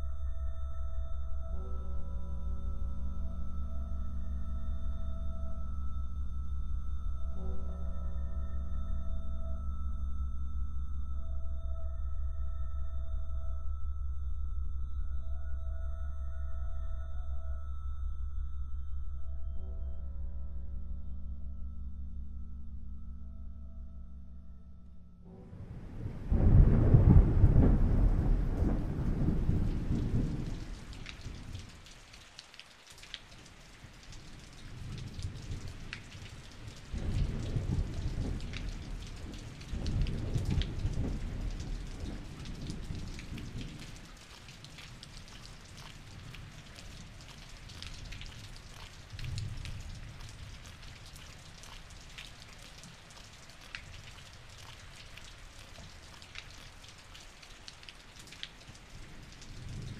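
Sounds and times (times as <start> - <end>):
rolling thunder: 25.3 - 31.9, 34.2 - 52.0, 58.9 - 59.9
steady rain patter: 25.3 - 59.9.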